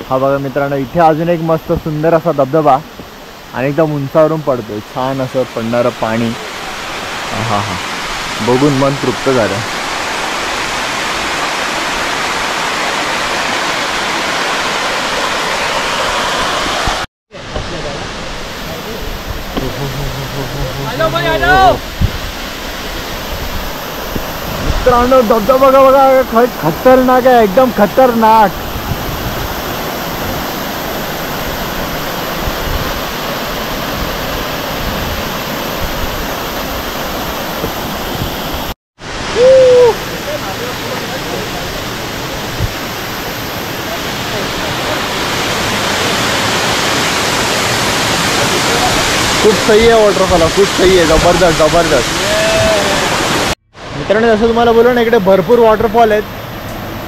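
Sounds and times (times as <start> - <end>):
waterfall rushing: 0.2 - 57.0
short loud cry: 39.4 - 40.0.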